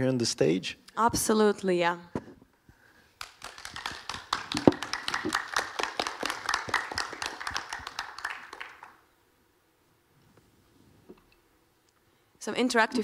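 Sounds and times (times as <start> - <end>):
audience applause: 3.2 - 9.0.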